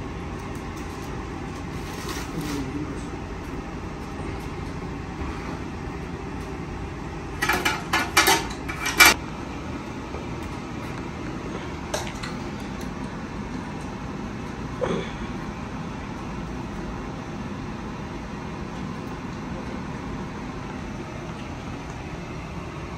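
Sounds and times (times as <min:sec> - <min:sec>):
steady background hum: 0:00.0 - 0:22.9
metal kitchenware clattering: 0:07.4 - 0:09.2.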